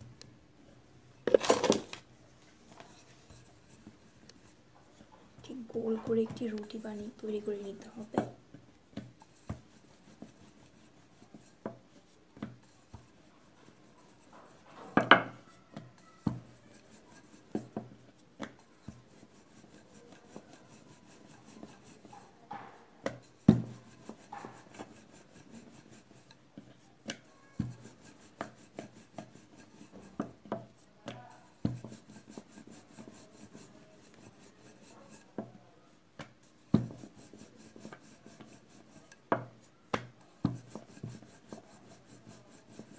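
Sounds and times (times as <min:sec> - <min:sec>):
rolling pin rubbing dough: 0:02.7 - 0:42.9
rolling pin knocking on board: 0:22.6 - 0:24.6, 0:36.2 - 0:37.0.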